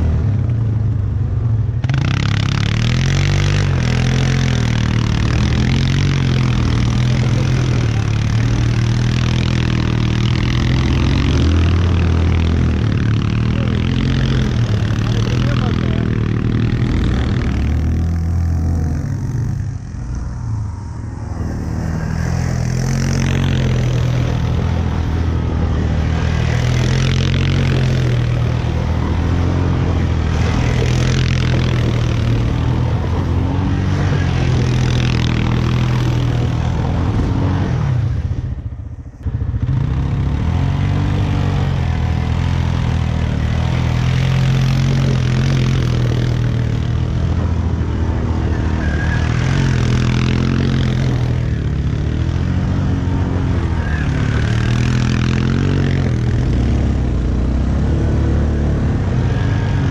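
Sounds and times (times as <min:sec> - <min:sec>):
quad bike engine revving: 0:00.0 - 0:00.7, 0:01.3 - 0:59.9
wheels spinning in mud: 0:39.6 - 0:59.9.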